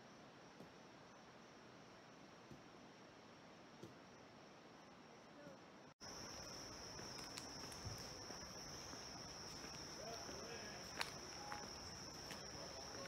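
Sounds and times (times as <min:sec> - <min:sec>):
footsteps on gravel: 0:06.0 - 0:13.0
insect chorus buzzing: 0:06.0 - 0:13.0.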